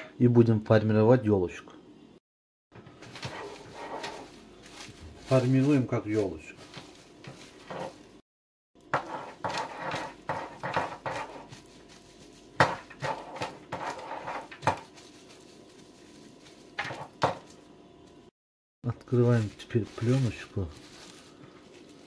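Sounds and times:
cling film crinkling: 0:03.0 - 0:08.2, 0:14.4 - 0:18.2, 0:19.1 - 0:22.0.

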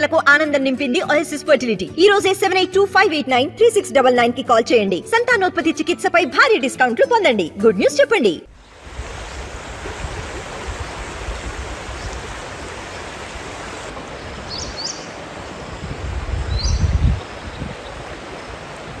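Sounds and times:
water hissing: 0:08.5 - 0:14.0.

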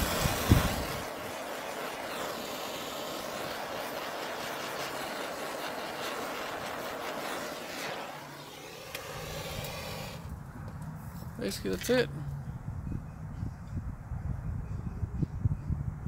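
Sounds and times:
gas torch hissing: 0:00.0 - 0:10.4.

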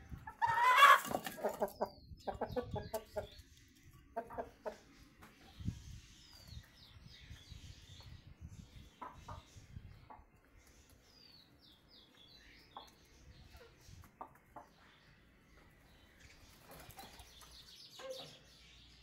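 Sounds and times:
chickens clucking: 0:00.0 - 0:07.4, 0:08.0 - 0:18.5.

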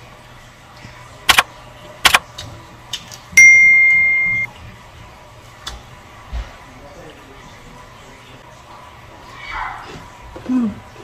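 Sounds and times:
sharp clicks: 0:01.3 - 0:02.2
bright bell ding: 0:03.4 - 0:04.5.

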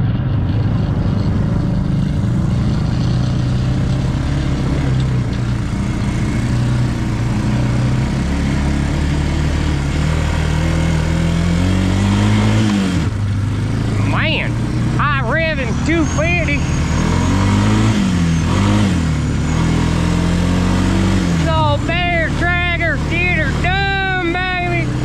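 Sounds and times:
atv engine running: 0:00.0 - 0:25.0
tyre and ride noise: 0:00.0 - 0:25.0.

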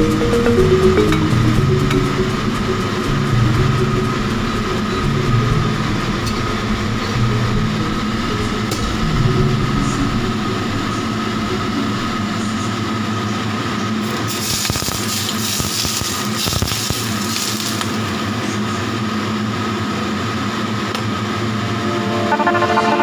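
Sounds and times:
thin steady whine: 0:00.0 - 0:14.3, 0:21.2 - 0:23.0
water boiling in a pot: 0:14.0 - 0:20.6.

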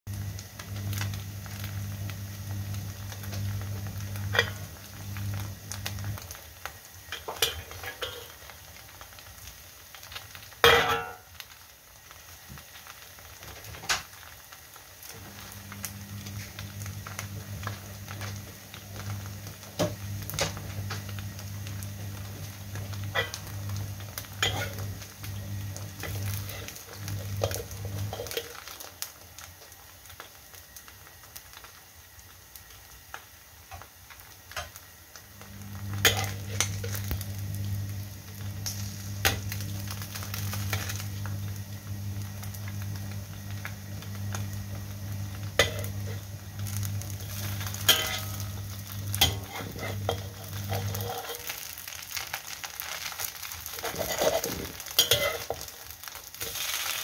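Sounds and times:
cake frying in oil: 0:00.1 - 0:57.0
metal spatula scraping a wok: 0:07.2 - 0:08.4, 0:24.4 - 0:24.8, 0:47.3 - 0:48.4, 0:49.1 - 0:51.6, 0:53.7 - 0:55.6
low steady hum: 0:15.1 - 0:28.8, 0:35.3 - 0:51.7.

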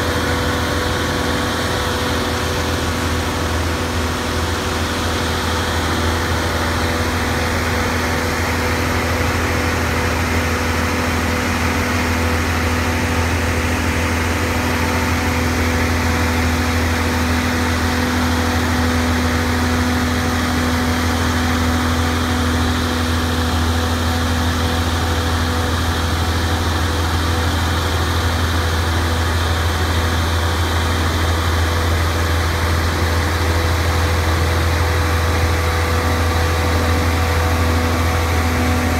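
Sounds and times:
heavy engine droning: 0:00.0 - 0:38.9.

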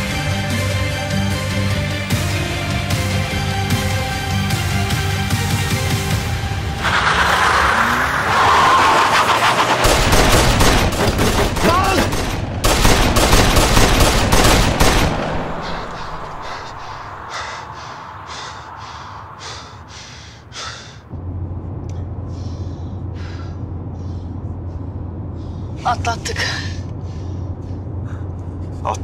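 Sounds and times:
rapid gunfire: 0:09.5 - 0:16.6.

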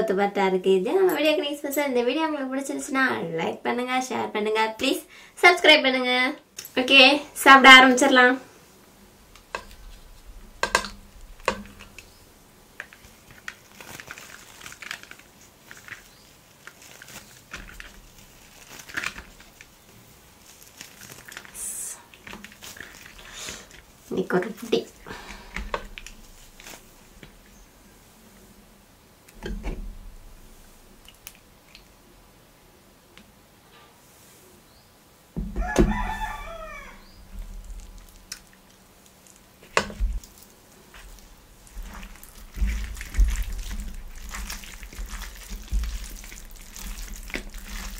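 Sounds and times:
hissy rustle: 0:08.4 - 0:28.8, 0:33.7 - 0:34.8
flatbread tearing with crackling: 0:09.4 - 0:24.0, 0:25.2 - 0:27.5, 0:36.2 - 0:47.9
rooster crowing: 0:35.5 - 0:37.3.

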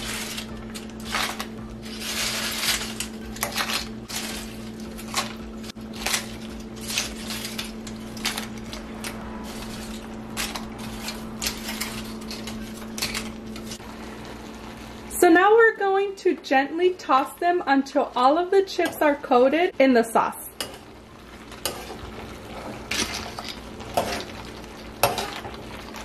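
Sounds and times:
chips crackling and clattering: 0:00.0 - 0:13.8, 0:21.4 - 0:26.0
steady low hum: 0:00.0 - 0:15.3.

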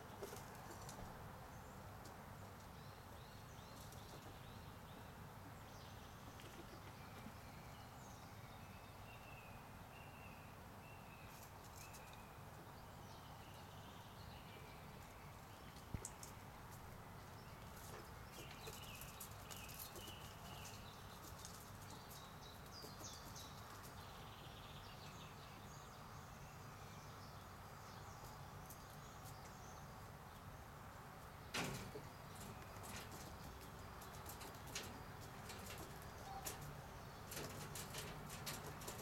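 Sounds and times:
loud knock or rustle: 0:31.5 - 0:32.1.

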